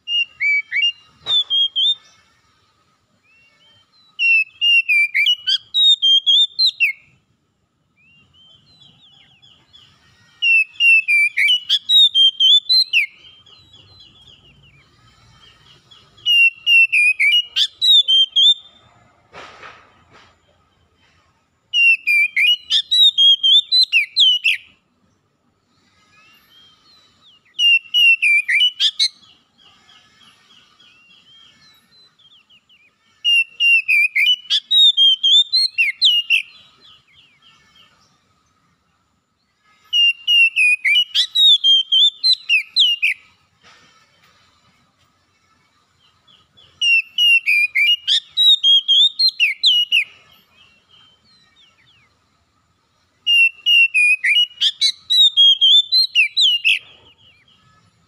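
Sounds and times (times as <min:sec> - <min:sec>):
bird singing whistled phrases: 0:00.0 - 0:02.1, 0:03.2 - 0:07.1, 0:08.0 - 0:18.7, 0:21.7 - 0:24.7, 0:26.2 - 0:29.4, 0:30.2 - 0:37.9, 0:39.9 - 0:43.3, 0:46.4 - 0:52.1, 0:53.2 - 0:57.6
soft bird twittering: 0:19.8 - 0:58.0.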